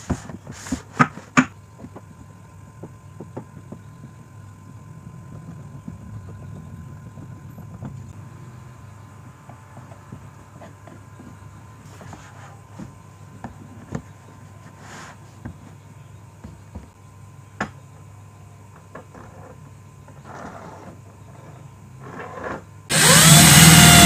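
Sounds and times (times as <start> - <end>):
low background rumble: 1.6 - 11.9.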